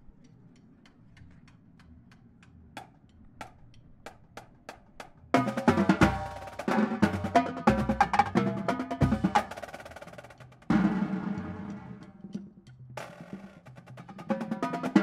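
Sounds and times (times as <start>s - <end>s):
marching drumline: 5.0s - 15.0s.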